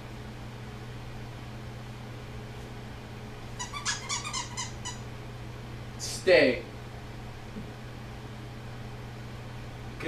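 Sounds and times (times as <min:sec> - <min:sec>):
room hum: 0:00.0 - 0:10.0
puppy whimpering: 0:03.6 - 0:05.1.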